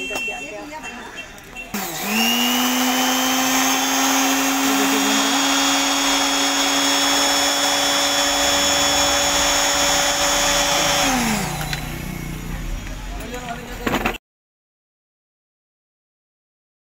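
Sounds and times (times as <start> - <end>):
sewing machine motor whining: 1.8 - 12.5.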